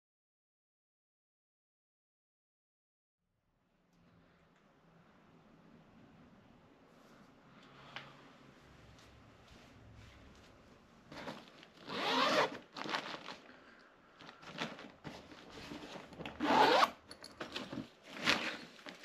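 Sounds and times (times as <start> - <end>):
fabric rustling: 9.0 - 13.5, 14.2 - 19.0
zipper being pulled: 11.1 - 13.4, 15.5 - 17.0.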